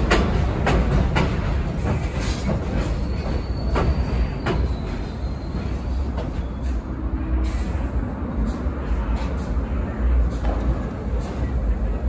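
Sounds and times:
wheels clacking over rail joints: 0:00.0 - 0:07.6
subway train rumbling: 0:00.0 - 0:12.0
faint high brake squeal: 0:02.8 - 0:07.9.

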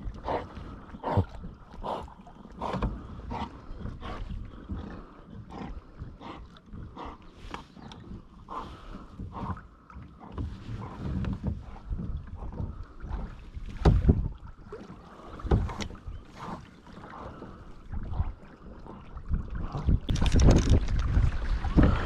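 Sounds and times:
water splashing against hull: 0:00.0 - 0:22.0
hull knocks and thumps: 0:10.3 - 0:14.3, 0:15.4 - 0:16.0
wind buffeting microphone: 0:10.4 - 0:14.6, 0:17.8 - 0:22.0.

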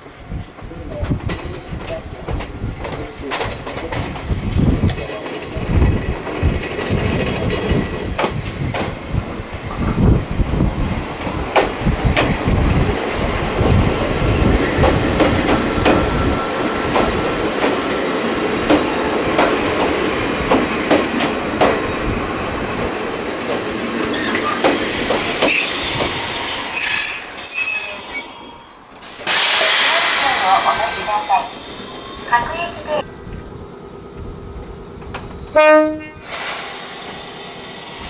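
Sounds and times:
train rumble: 0:00.0 - 0:38.0
train wheels clicking over rail joints: 0:00.9 - 0:10.2, 0:11.0 - 0:21.9, 0:22.8 - 0:26.8, 0:28.9 - 0:30.6
high-pitched squealing: 0:24.1 - 0:28.7.

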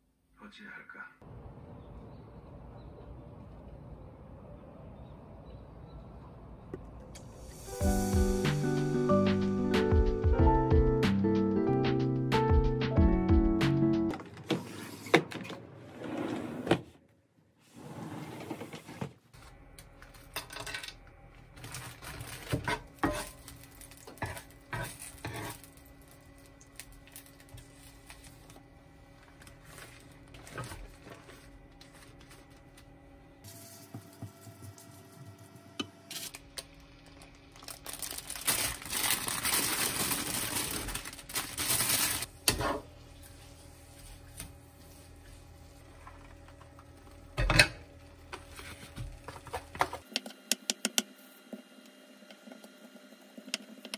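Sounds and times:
scraping and sizzling in pan: 0:23.0 - 0:23.5, 0:24.1 - 0:25.8.

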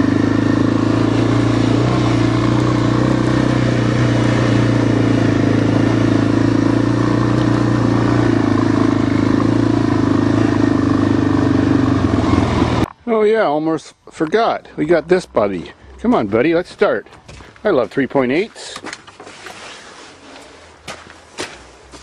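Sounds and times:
vehicle engine running loud: 0:00.0 - 0:12.9.

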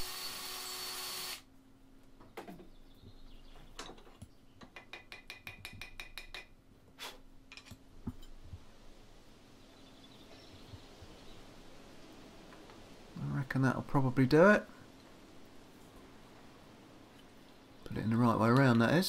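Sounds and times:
cordless drill running: 0:00.0 - 0:01.5.

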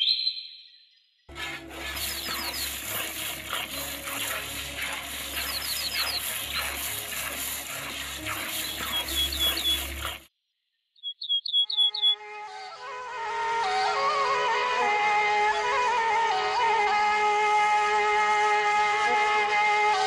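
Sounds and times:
high bird chirps: 0:00.0 - 0:01.3, 0:01.9 - 0:03.4, 0:05.2 - 0:07.0, 0:08.2 - 0:10.2, 0:11.0 - 0:12.2
milk squirting into metal pail: 0:01.3 - 0:10.3.

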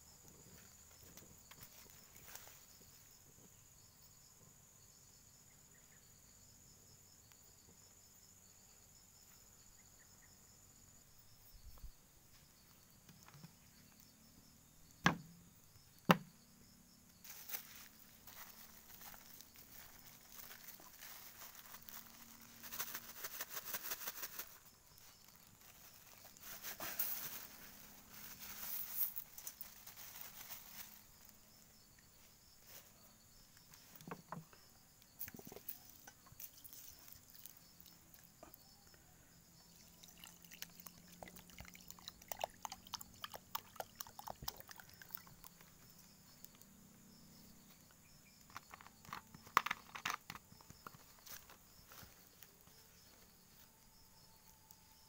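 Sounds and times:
rice poured into water: 0:39.8 - 0:45.3.

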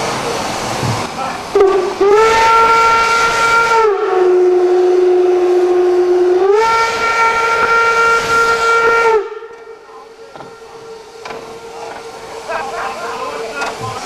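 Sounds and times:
steam whistle blast: 0:01.5 - 0:12.7.

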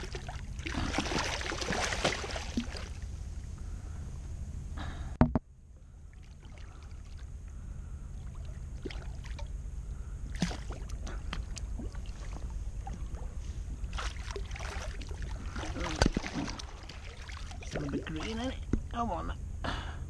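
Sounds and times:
small water splashes: 0:00.0 - 0:03.1, 0:06.1 - 0:07.3, 0:08.2 - 0:09.5, 0:10.3 - 0:13.2, 0:13.9 - 0:18.6
wind and water rumble: 0:00.0 - 0:19.9.

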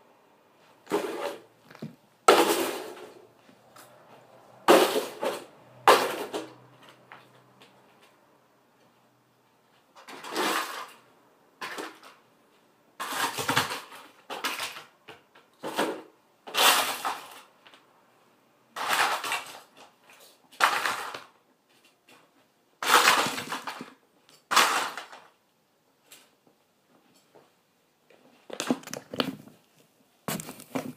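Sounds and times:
footsteps: 0:00.6 - 0:02.0, 0:02.9 - 0:04.6, 0:30.3 - 0:30.9
plastic toys clattering and cracking: 0:00.8 - 0:03.2, 0:04.6 - 0:07.3, 0:09.9 - 0:12.3, 0:13.0 - 0:17.8, 0:18.7 - 0:25.4, 0:26.0 - 0:27.4, 0:28.1 - 0:30.9.

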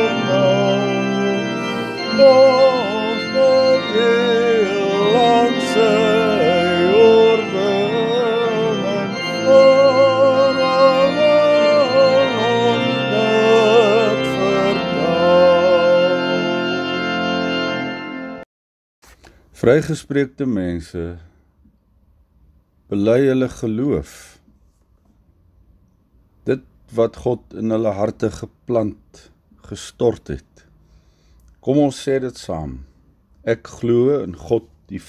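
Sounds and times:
organ music: 0:00.0 - 0:18.5.

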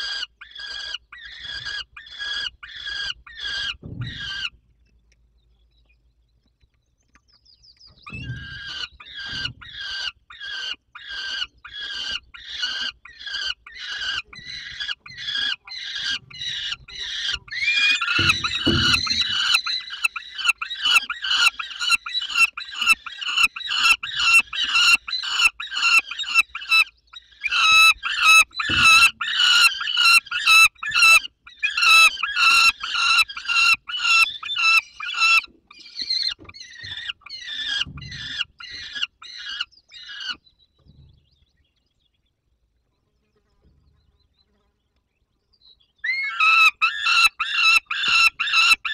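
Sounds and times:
young falcons begging calls: 0:00.0 - 0:04.6, 0:08.1 - 0:40.4, 0:46.0 - 0:48.9
dull thumps: 0:18.0 - 0:19.8.

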